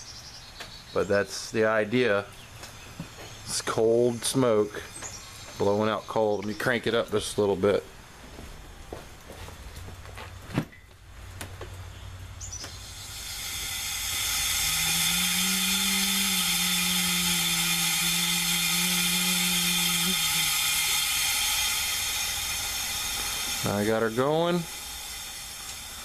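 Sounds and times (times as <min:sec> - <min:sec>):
low steady hum: 0:00.0 - 0:26.0
compressed air hissing: 0:12.5 - 0:26.0.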